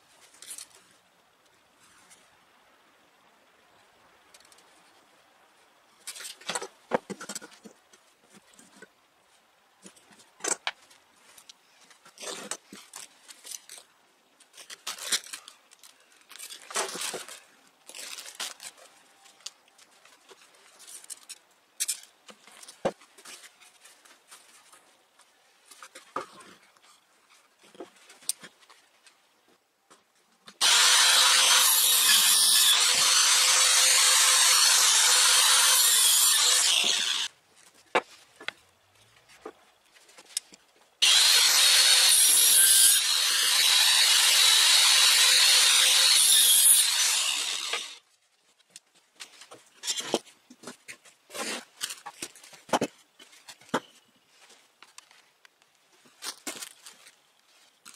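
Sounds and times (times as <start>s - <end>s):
power saw cutting wood: 30.6s - 37.3s, 41.0s - 48.0s.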